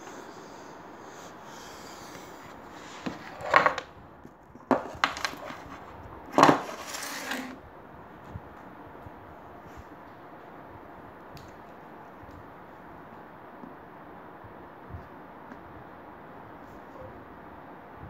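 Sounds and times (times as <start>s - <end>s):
hand handling noise on wooden desk: 3.0s - 3.9s, 4.6s - 7.6s.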